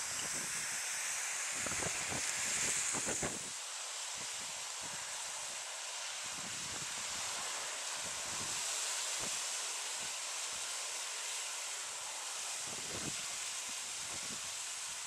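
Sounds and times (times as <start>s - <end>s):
wind gusting over microphone: 1.6s - 3.5s.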